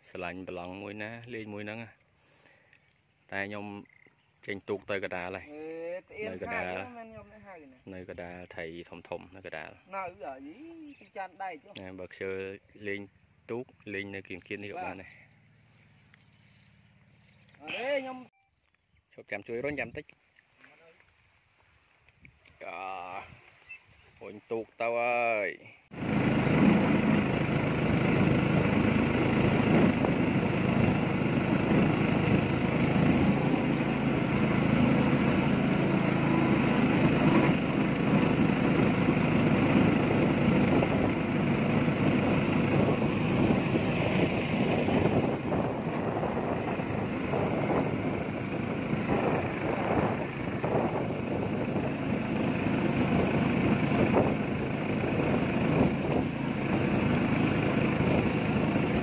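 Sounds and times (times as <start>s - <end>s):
boat engine running: 6.0s - 8.4s, 12.1s - 18.3s, 25.9s - 59.0s.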